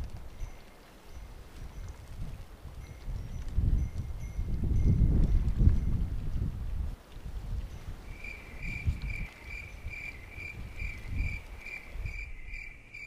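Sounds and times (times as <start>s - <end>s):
wind on microphone: 0.0s - 13.0s
cricket chirping: 8.1s - 13.0s.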